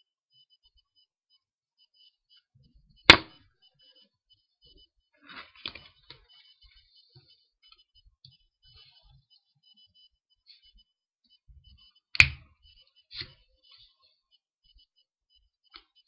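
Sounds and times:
playing card snap: 12.2 - 12.4.

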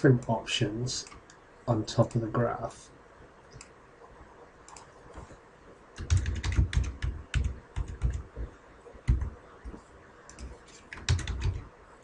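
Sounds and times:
computer keyboard typing: 6.0 - 11.7.

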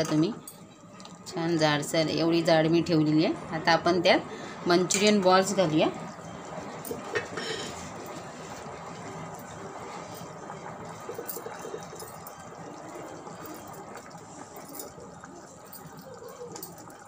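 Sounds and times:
thick gravy bubbling: 5.2 - 17.0.

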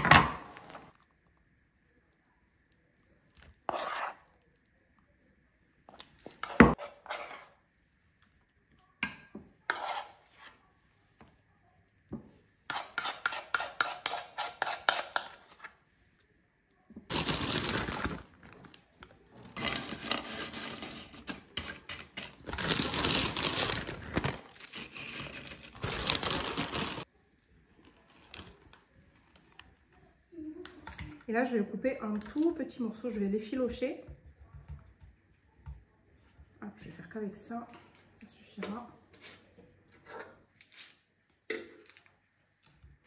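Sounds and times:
metal spoon scraping ceramic dish: 9.7 - 10.5
tortilla chips rustling and crinkling: 17.1 - 27.1.

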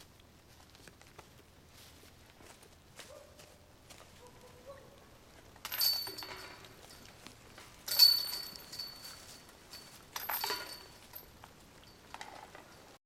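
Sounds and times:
discs striking metal basket chains: 5.6 - 7.2, 7.8 - 12.6.

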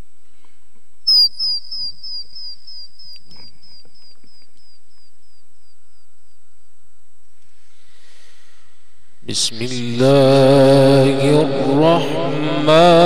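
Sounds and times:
high falling chirp echoing: 1.1 - 6.1.

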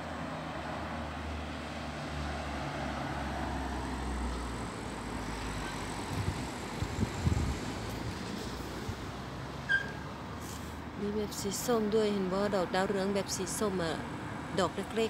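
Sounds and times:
vehicle engine passing: 0.0 - 9.4.

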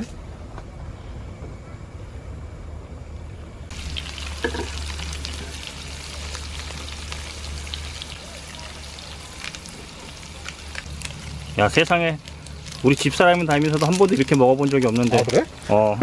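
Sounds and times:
food sizzling in hot oil: 3.7 - 16.0.

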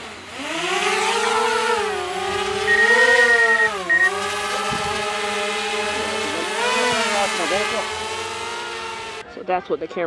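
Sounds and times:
drone propellers whining: 0.0 - 9.2.

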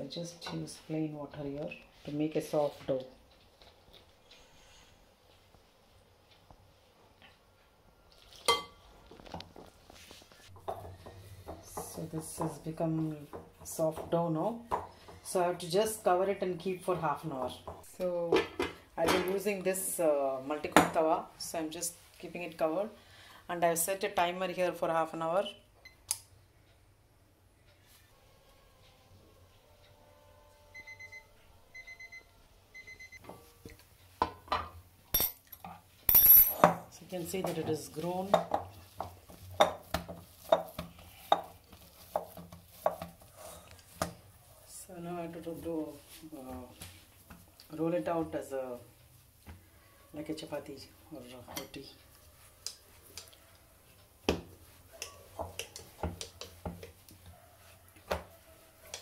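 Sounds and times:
kitchen timer beeping: 30.7 - 33.2
knocks and clinks: 35.1 - 35.5, 36.1 - 36.8.

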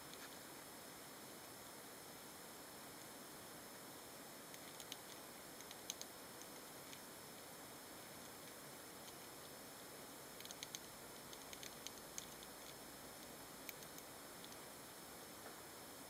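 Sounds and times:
faint steady hiss: 0.0 - 16.0
hamsters picking at seeds clicks: 4.4 - 7.5, 8.1 - 9.6, 10.3 - 14.8.

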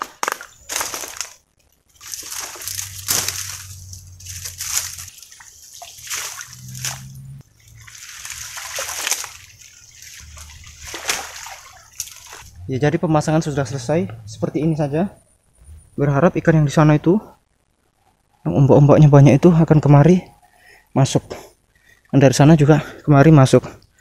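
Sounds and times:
dry palm fronds swishing: 0.0 - 12.6
water sloshing and splashing: 0.7 - 12.6.

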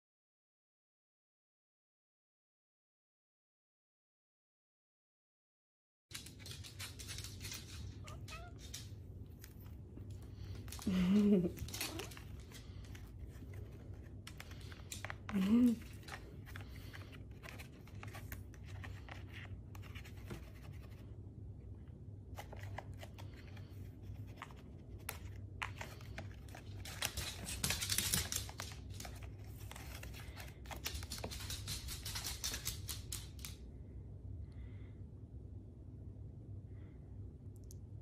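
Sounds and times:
cat claws scratching plastic basket: 24.2 - 32.8.

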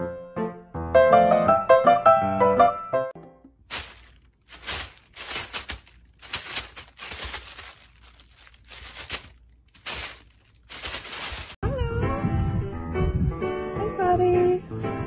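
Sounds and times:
plastic bag crinkling: 3.6 - 11.6.

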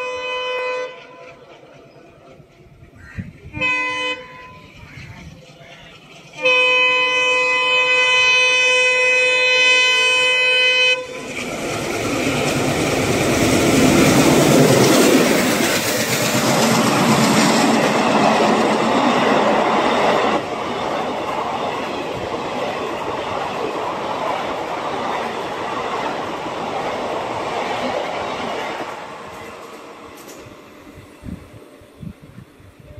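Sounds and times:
train horn blast: 0.0 - 1.3, 3.4 - 4.8, 6.4 - 11.4
train wheels clickety-clack: 0.0 - 8.1, 11.2 - 31.7
diesel locomotive passing: 0.0 - 32.9.

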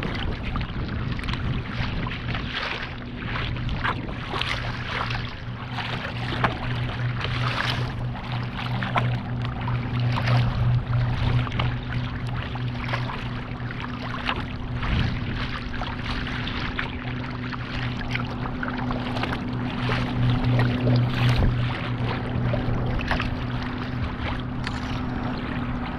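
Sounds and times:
steady low hum: 0.0 - 25.9
water splashing against kayak: 0.0 - 25.9.

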